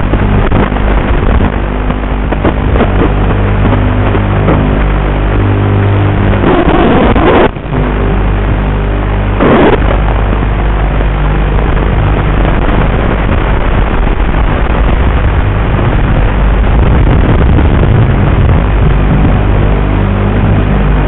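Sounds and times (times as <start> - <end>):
burst of noise: 6.0 - 7.9, 9.3 - 10.0.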